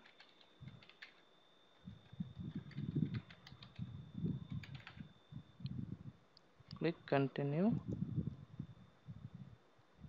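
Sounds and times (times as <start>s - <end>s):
typing on computer keyboard: 0.0s - 1.3s, 1.9s - 5.1s.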